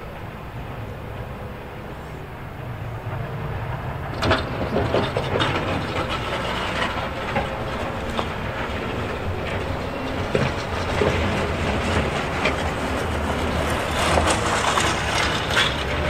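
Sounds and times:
diesel engine running: 0.0 - 16.0
steel scraping on frozen surface: 11.8 - 16.0.

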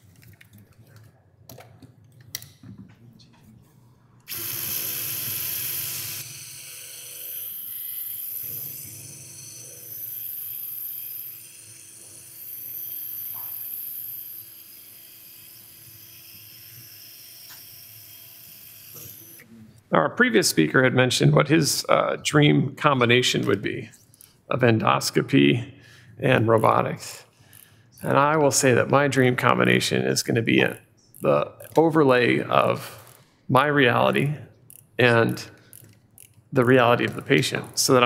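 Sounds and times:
surgical drill whirring: 4.2 - 19.6.

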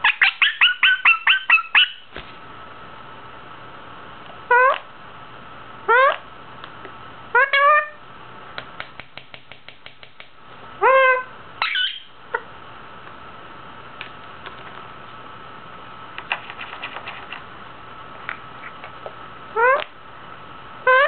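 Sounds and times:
parakeet rough squawk: 0.0 - 2.0, 10.8 - 12.1
parakeet rising call: 10.8 - 12.1.

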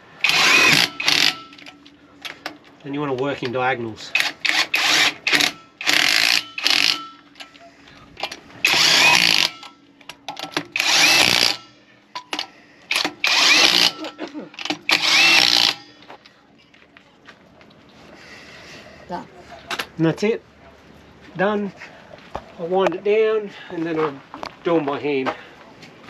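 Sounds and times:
cordless power driver bursts: 0.2 - 1.8, 4.2 - 7.2, 8.2 - 9.7, 10.4 - 16.0.

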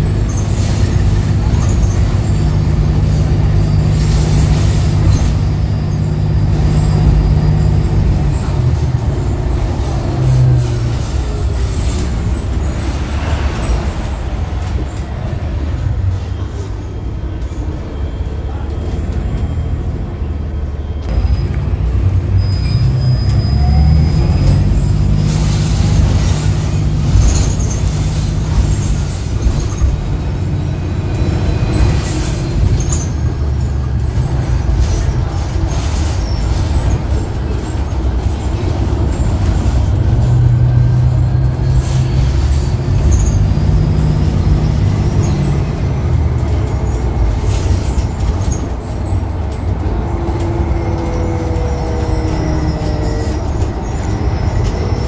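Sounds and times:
bus cabin drone: 0.0 - 55.0
rattles: 24.1 - 55.0.

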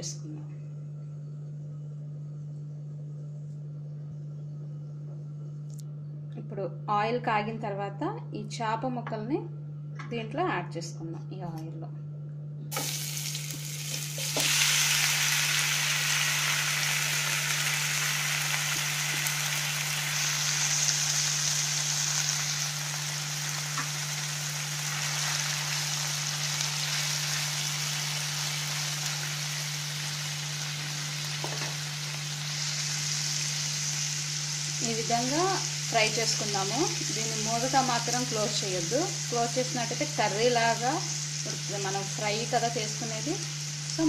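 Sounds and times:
fish sizzling in oil: 12.7 - 44.0.

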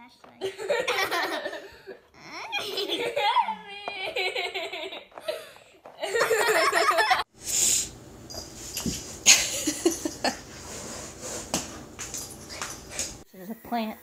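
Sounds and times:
person laughing and giggling: 0.4 - 7.3, 9.3 - 10.4.

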